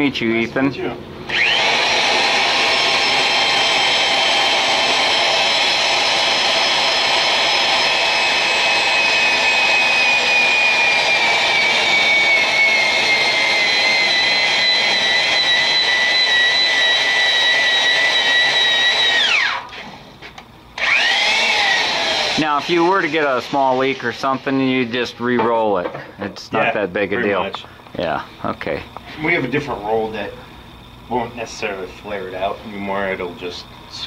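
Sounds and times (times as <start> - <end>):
drill whining: 1.3 - 20.0, 20.7 - 25.1.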